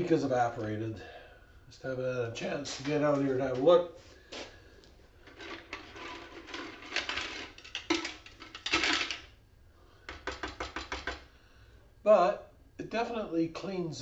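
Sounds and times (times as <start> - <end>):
scraping sound: 5.3 - 7.6.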